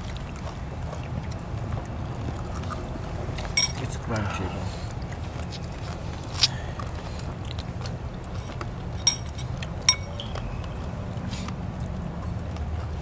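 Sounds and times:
low hum: 2.8 - 4.1, 5.0 - 11.2
crunchy snack being eaten: 6.2 - 6.7.

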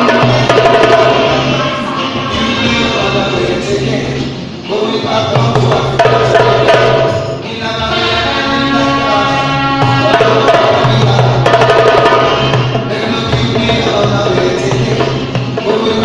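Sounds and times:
hand drumming: 0.0 - 3.0, 5.4 - 7.3, 9.8 - 16.0
chanting vocal: 0.0 - 16.0.

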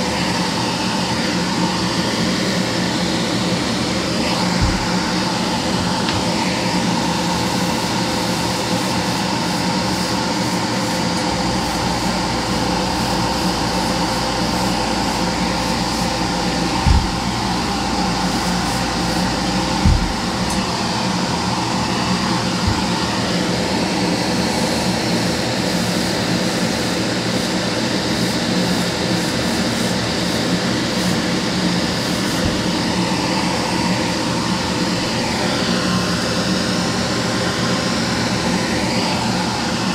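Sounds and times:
extractor fan whirring: 0.0 - 39.9
brief low thumps: 4.6 - 5.2, 11.4 - 20.8.

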